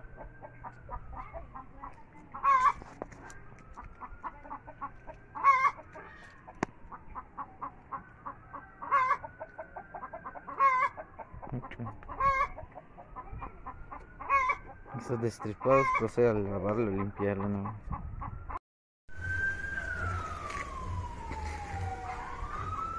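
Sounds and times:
chickens clucking: 0:00.0 - 0:18.6
loud wavering chicken call: 0:04.3 - 0:06.5, 0:07.4 - 0:11.3, 0:12.1 - 0:15.1.

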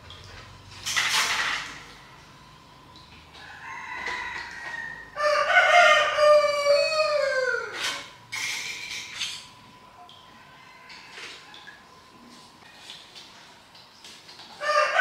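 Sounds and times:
rooster crowing: 0:03.4 - 0:07.8, 0:10.3 - 0:11.6, 0:14.6 - 0:15.0.

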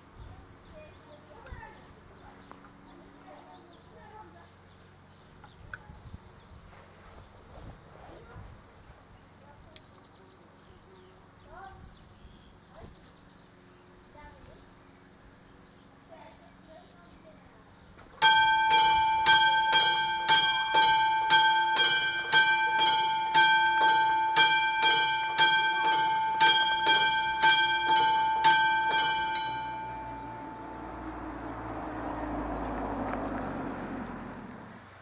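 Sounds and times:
level crossing warning bell: 0:18.2 - 0:32.6.

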